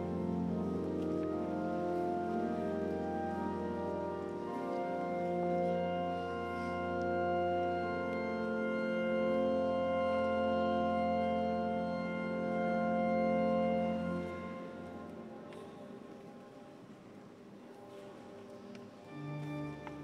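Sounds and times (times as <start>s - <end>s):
church organ chords: 0.0s - 15.2s.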